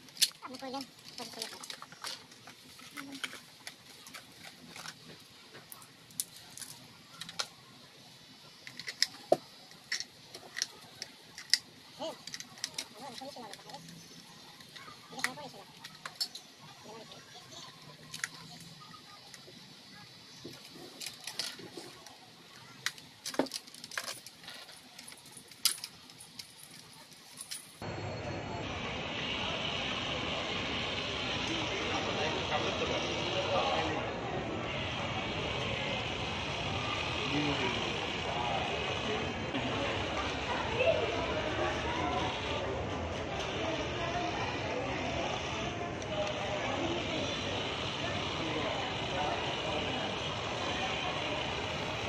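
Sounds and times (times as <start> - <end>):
plastic toy clicking and clacking: 0.1 - 5.1, 6.2 - 7.6, 8.6 - 16.5, 18.0 - 19.6, 20.6 - 27.5.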